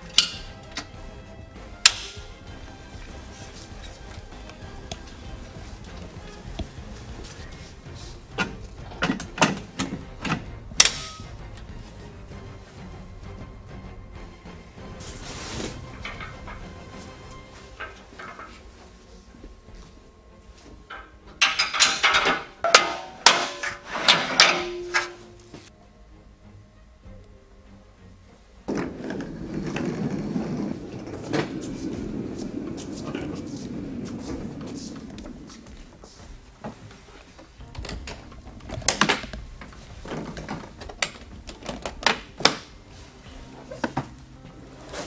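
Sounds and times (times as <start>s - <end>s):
metal plates clanking on frame: 0.0s - 12.4s, 15.0s - 19.5s, 20.8s - 25.7s.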